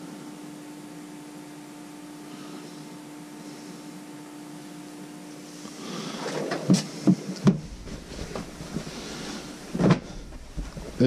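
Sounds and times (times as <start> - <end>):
faint steady hum: 0.0 - 11.0
rustling: 5.6 - 11.0.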